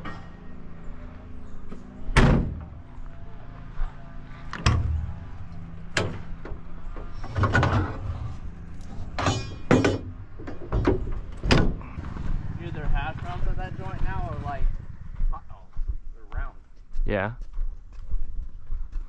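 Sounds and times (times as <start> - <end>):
metal doors banging shut: 2.1 - 2.8, 4.6 - 5.1, 5.9 - 8.2, 9.1 - 12.0.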